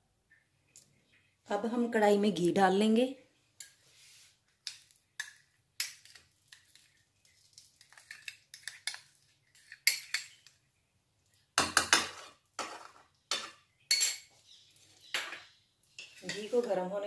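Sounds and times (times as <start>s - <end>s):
metal spoon scraping bowl and pan: 7.8s - 10.5s, 11.6s - 14.4s, 15.0s - 17.0s.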